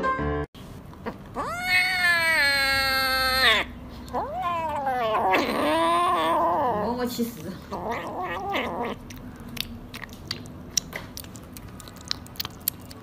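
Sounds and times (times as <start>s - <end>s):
kitten meowing: 1.0s - 6.9s, 7.7s - 9.0s.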